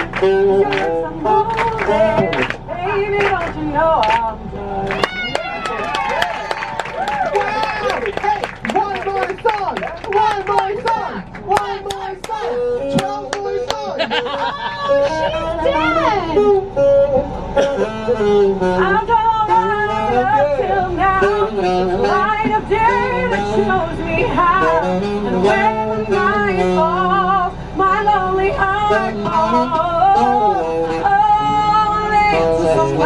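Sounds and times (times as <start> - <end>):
saxophone playing pop melody: 0.0 - 33.0.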